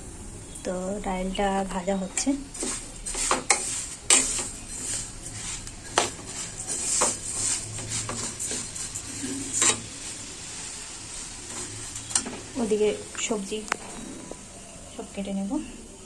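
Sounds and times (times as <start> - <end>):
lentils rustling and scraping in pan: 1.4 - 14.5.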